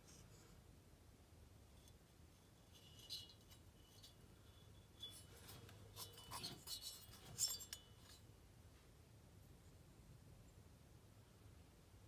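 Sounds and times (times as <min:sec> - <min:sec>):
small rustles: 0:01.7 - 0:09.0
light metallic clinks: 0:02.7 - 0:08.2.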